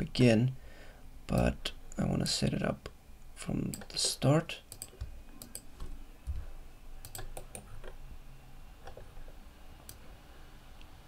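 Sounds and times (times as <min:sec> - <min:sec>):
keyboard and mouse clicks: 0:07.0 - 0:08.0.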